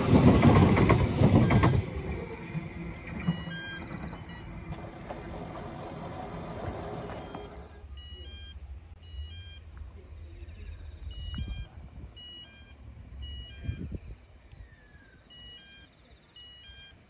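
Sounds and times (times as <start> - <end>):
wind buffeting microphone: 11.0 - 12.3, 13.0 - 14.8.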